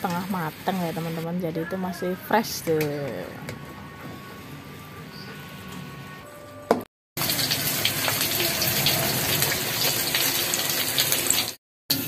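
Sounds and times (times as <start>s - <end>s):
deep-frying sizzle with crackles: 7.2s - 12.0s
stir-frying in a wok: 7.2s - 12.0s.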